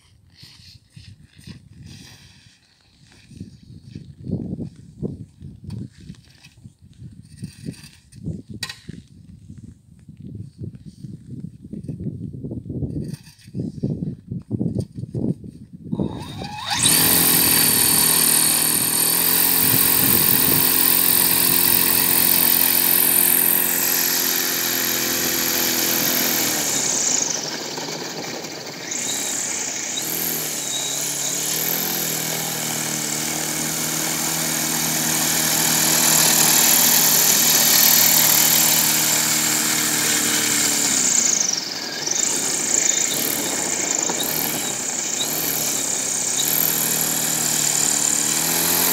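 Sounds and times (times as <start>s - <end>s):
propeller motor humming: 16.2s - 48.9s.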